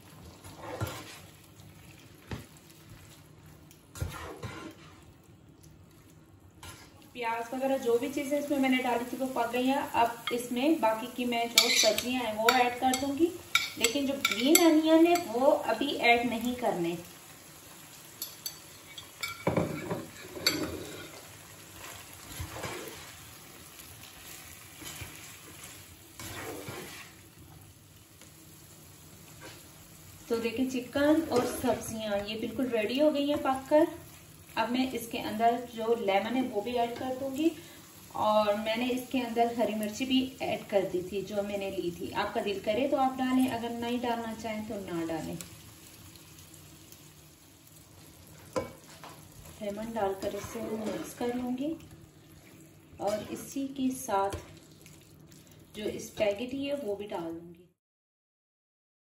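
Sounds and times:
faint sizzle: 0:00.0 - 0:57.8
spatula scraping frying pan: 0:00.3 - 0:01.4, 0:04.0 - 0:05.1, 0:06.6 - 0:07.0, 0:11.4 - 0:15.4, 0:18.2 - 0:23.3, 0:24.3 - 0:27.2, 0:31.2 - 0:31.9, 0:49.8 - 0:51.5, 0:53.0 - 0:53.6.

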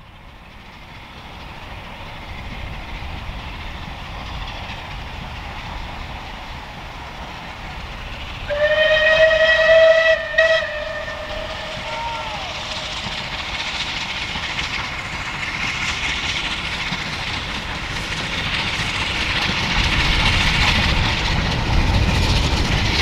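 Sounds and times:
rumble of passing train: 0:00.0 - 0:23.0
steam whistle blowing: 0:08.5 - 0:13.1.

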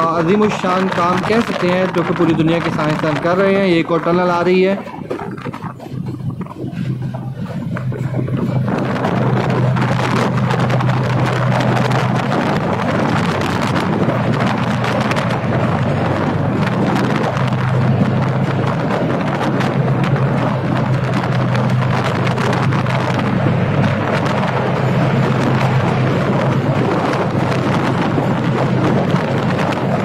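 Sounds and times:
low diesel engine hum: 0:00.0 - 0:30.0
wheel and track clatter: 0:00.0 - 0:30.0
wind on microphone: 0:00.0 - 0:30.0.

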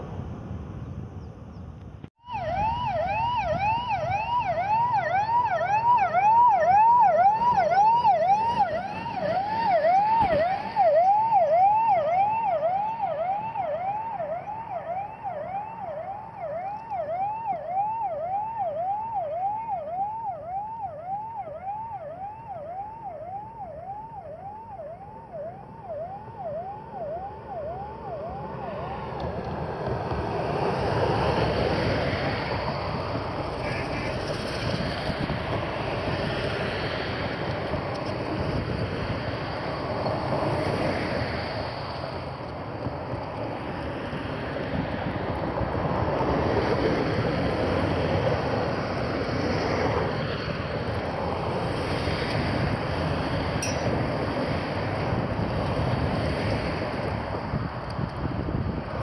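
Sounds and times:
electronic siren yelping: 0:02.2 - 0:29.2.

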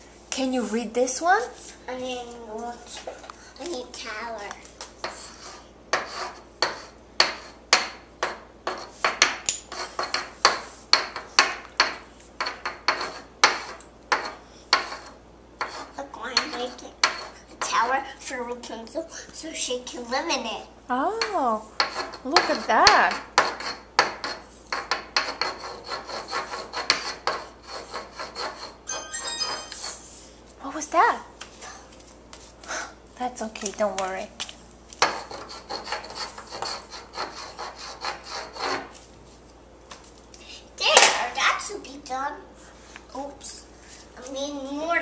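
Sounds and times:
chalk scraping on chalkboard: 0:04.8 - 0:07.6, 0:08.2 - 0:17.9, 0:21.8 - 0:30.4, 0:35.0 - 0:39.1
high chalk squeak: 0:25.4 - 0:30.3.

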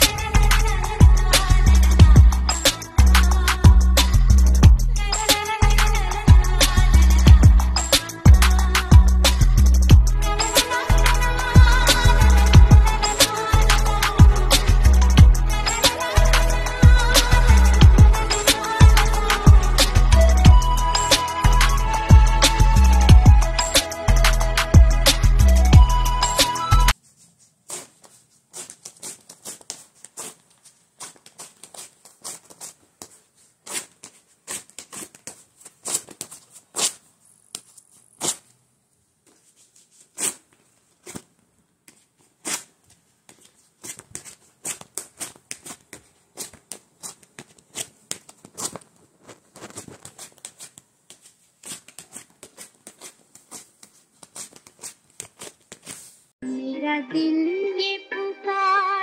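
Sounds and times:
wax strips ripping off leg: 0:27.3 - 0:38.6, 0:39.3 - 0:41.3, 0:42.4 - 0:56.3.

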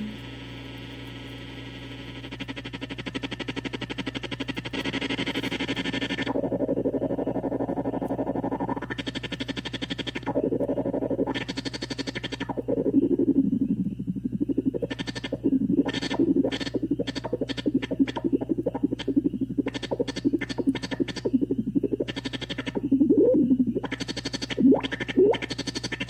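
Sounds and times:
buzzy synth drone: 0:02.1 - 0:26.0.

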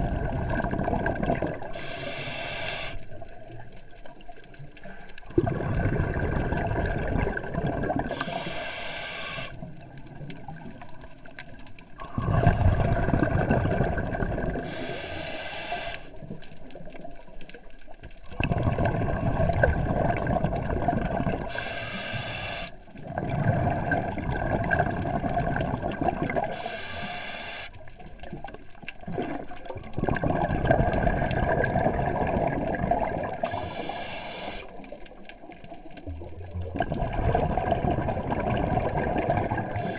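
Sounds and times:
exhaled bubbles rushing: 0:00.0 - 0:01.9, 0:05.2 - 0:08.4, 0:09.6 - 0:14.9, 0:18.3 - 0:21.7, 0:22.9 - 0:26.6, 0:28.2 - 0:33.9, 0:34.8 - 0:39.9
diver breathing through regulator: 0:01.6 - 0:03.1, 0:08.0 - 0:09.7, 0:14.6 - 0:16.2, 0:21.4 - 0:22.8, 0:26.4 - 0:27.8, 0:33.4 - 0:34.8, 0:39.5 - 0:39.9.

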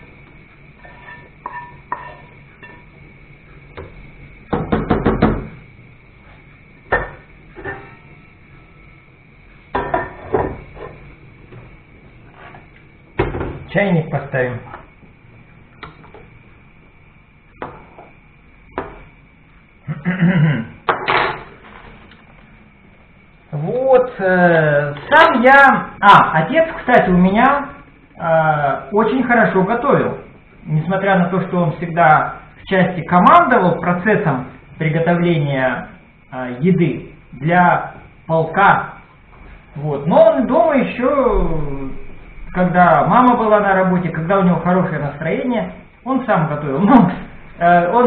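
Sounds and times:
wooden spatula scraping a pan: 0:00.8 - 0:02.3, 0:12.2 - 0:12.7.

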